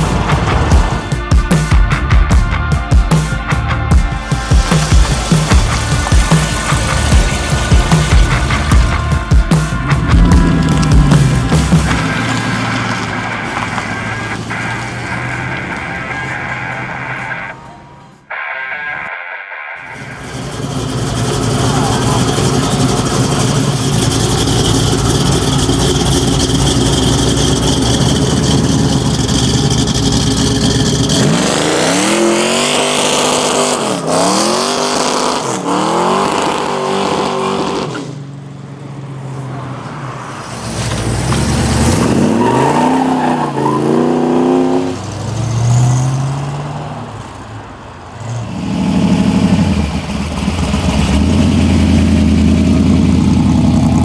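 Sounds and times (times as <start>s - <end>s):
car engines revving: 0.0s - 19.1s, 19.7s - 54.0s.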